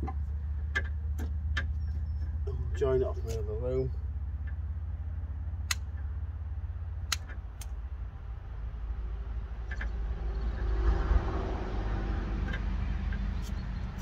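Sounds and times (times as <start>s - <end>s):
low rumble: 0.0s - 14.0s
sharp clicks: 5.6s - 6.1s, 7.0s - 7.8s.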